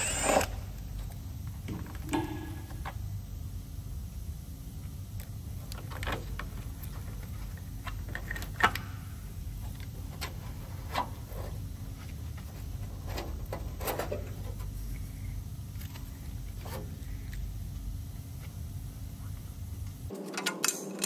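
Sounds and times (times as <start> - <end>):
steady low hum: 0.0 - 21.0
clicks and knocks of wiring clips: 20.1 - 21.0.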